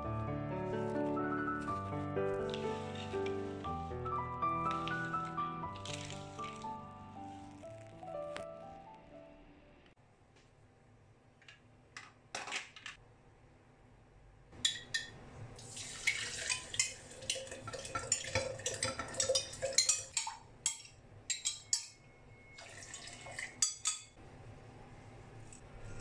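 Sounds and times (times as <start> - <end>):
seeds and liquid pouring into jug: 4.6 - 8.1, 15.6 - 18.8, 22.6 - 23.6
water pouring: 4.6 - 8.2, 15.6 - 20.4, 22.6 - 23.8.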